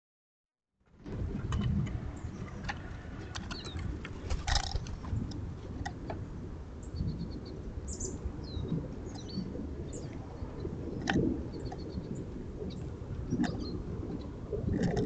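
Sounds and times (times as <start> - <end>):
wind on microphone: 0.8 - 15.0
small birds chirping: 1.6 - 4.9, 6.8 - 10.8, 11.4 - 13.8
brief rustle: 2.6 - 5.2.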